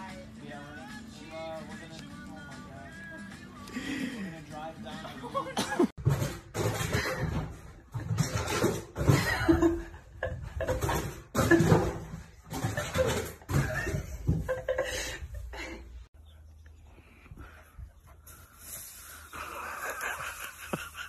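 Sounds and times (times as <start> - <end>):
person laughing hard: 5.0 - 5.9, 12.6 - 16.0, 19.3 - 21.0.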